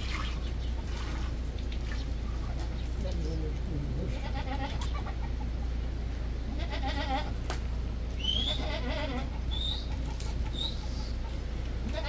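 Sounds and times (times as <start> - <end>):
goats bleating: 4.1 - 5.2, 6.5 - 7.4, 8.3 - 9.4, 11.8 - 12.0.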